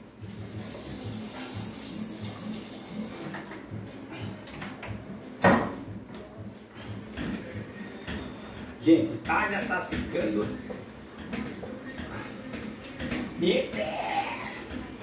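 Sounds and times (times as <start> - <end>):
object knocking on counter: 5.4 - 5.8.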